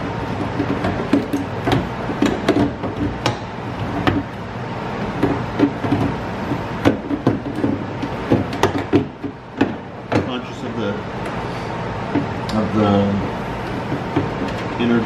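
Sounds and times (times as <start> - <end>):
plastic knocks and clicks: 0.3 - 4.3, 5.1 - 10.3, 13.8 - 14.7.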